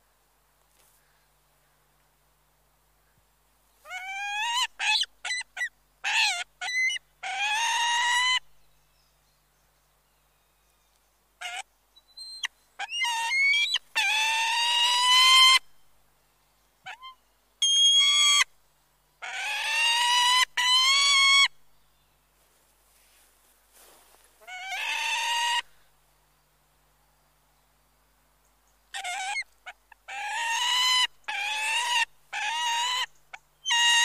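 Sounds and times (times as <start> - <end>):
eagles calling: 24.4 - 25.8.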